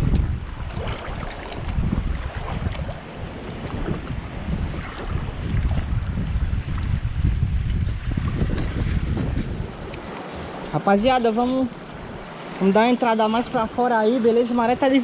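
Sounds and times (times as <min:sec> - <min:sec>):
seawater sloshing around legs: 0:00.0 - 0:06.8
wind buffeting microphone: 0:00.0 - 0:15.0.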